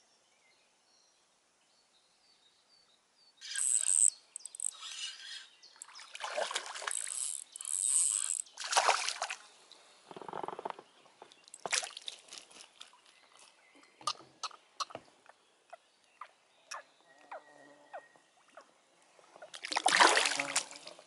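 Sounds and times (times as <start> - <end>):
fish splashing in water: 19.6 - 20.9.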